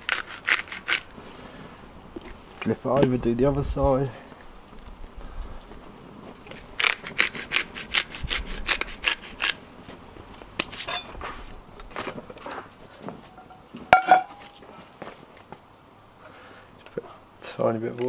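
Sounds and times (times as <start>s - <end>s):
pepper grinder grinding: 0.0s - 1.1s, 6.8s - 9.6s
frying pan clanking on stove: 13.4s - 14.5s.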